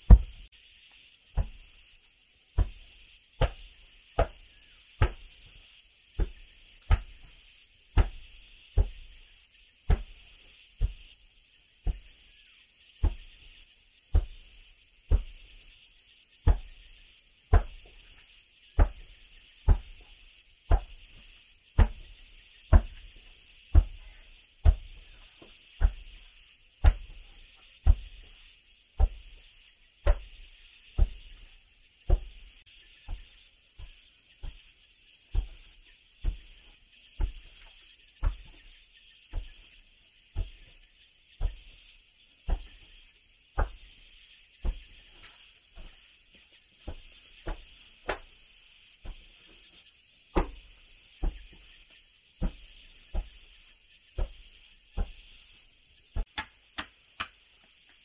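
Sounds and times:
steady high hiss: 0.0 - 58.0
hand tool striking wood: 0.1 - 0.4, 2.6 - 3.6, 4.2 - 4.4, 5.0 - 5.3, 6.2 - 7.3, 8.0 - 8.2, 14.1 - 14.5, 20.7 - 21.2, 21.8 - 22.1, 30.0 - 30.3, 46.8 - 48.3.

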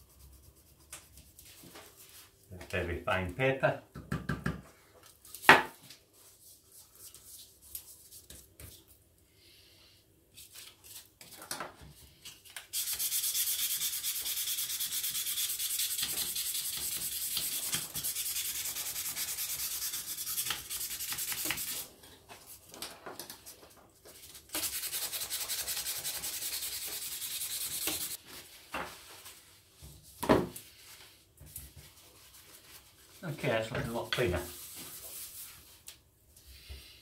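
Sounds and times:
abrasive paper rubbing on metal: 12.8 - 21.9, 24.3 - 28.2.

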